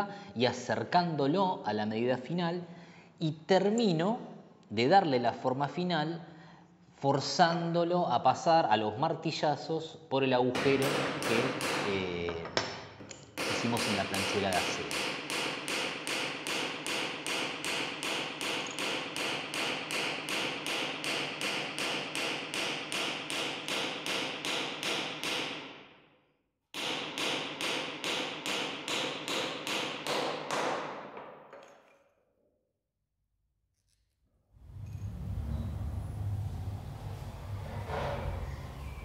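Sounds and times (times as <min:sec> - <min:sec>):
hammer tapping wooden dowel: 0:10.6 - 0:12.8, 0:13.4 - 0:25.5, 0:26.8 - 0:31.7.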